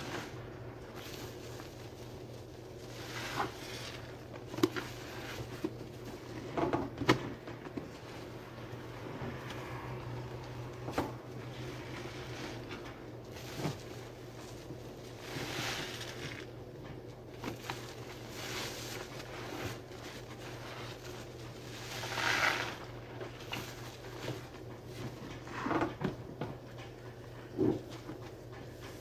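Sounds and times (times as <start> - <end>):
sponge squeezing suds: 0.0 - 5.5, 13.3 - 16.5, 17.5 - 22.9.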